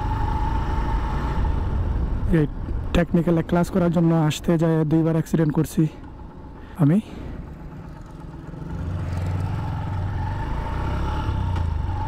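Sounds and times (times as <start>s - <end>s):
motorcycle engine running: 7.2s - 12.0s.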